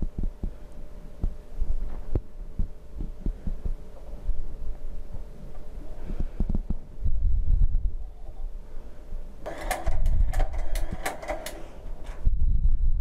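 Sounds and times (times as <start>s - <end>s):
machine low thumps: 0.0s - 8.0s
sharp mechanical clicks: 9.4s - 11.7s.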